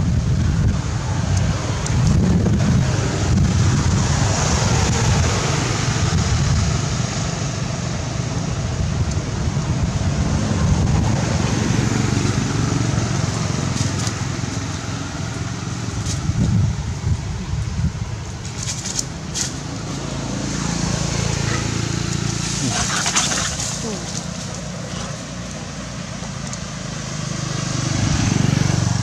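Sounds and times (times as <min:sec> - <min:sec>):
wind buffeting microphone: 0:00.0 - 0:23.7.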